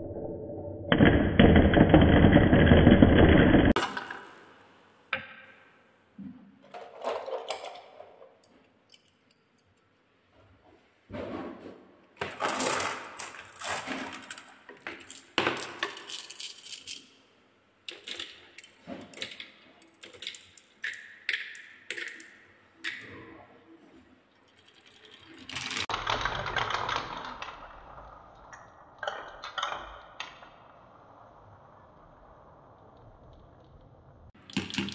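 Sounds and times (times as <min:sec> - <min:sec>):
glass marbles rolling on wooden tracks: 0:12.3 - 0:17.2, 0:17.9 - 0:23.0, 0:24.3 - 0:33.8
marbles clicking and knocking: 0:12.5 - 0:17.2, 0:17.9 - 0:23.4, 0:24.3 - 0:30.8, 0:34.4 - 0:34.9.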